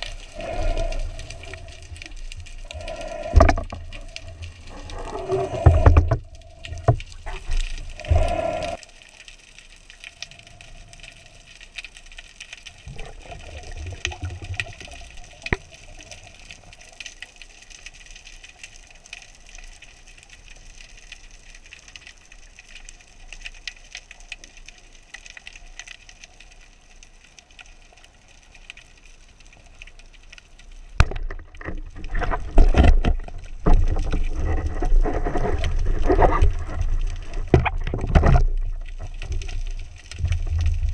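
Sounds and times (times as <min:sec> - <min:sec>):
water rushing: 0:00.0 - 0:09.2, 0:12.7 - 0:17.3
steady hiss: 0:00.0 - 0:31.0
underwater knocks: 0:03.3 - 0:03.8.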